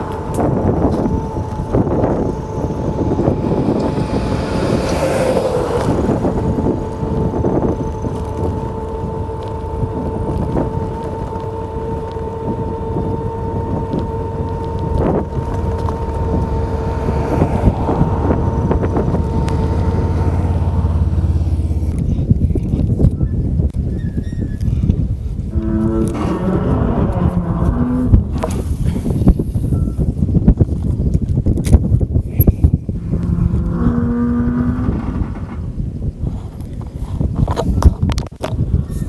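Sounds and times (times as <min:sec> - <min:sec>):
gale wind rumbling on microphone: 0:00.0 - 0:39.0
steady whistling tone: 0:29.7 - 0:30.1.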